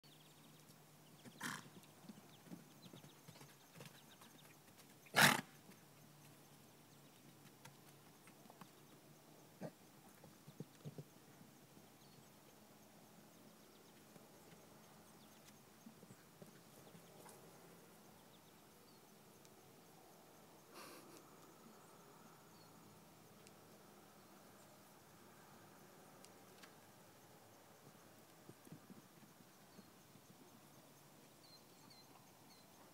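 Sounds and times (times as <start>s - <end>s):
horse snorting: 1.3s - 1.8s, 5.1s - 5.5s.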